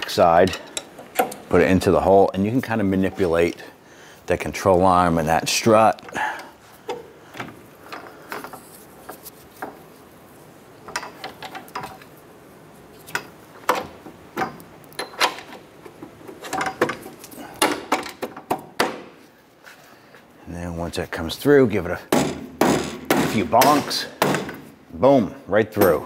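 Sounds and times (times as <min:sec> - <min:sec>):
metallic clicks and knocks: 0:00.4 - 0:01.6, 0:10.9 - 0:12.1.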